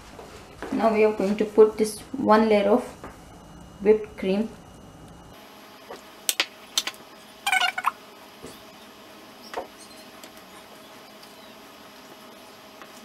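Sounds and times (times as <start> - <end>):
short buzzy squeak: 7.4 - 8.6, 9.4 - 10.7.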